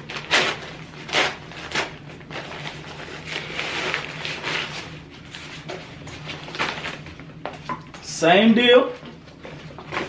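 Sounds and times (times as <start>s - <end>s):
packaging rustling and crinkling: 0.0s - 7.6s.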